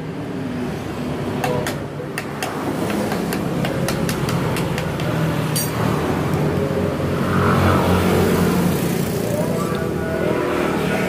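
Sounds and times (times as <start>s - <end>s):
sharp metallic clink: 5.5s - 5.8s.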